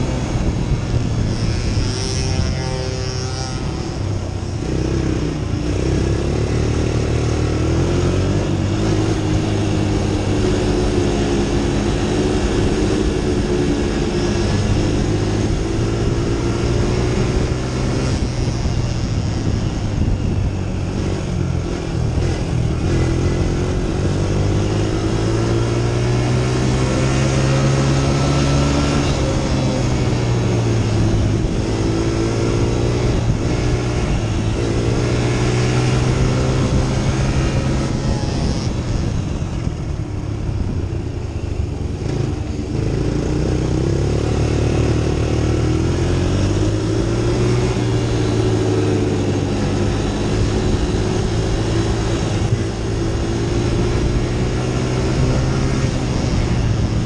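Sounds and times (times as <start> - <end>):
wind rushing over microphone: 0.0 - 57.0
racing engine revving: 20.9 - 39.6, 42.0 - 57.0.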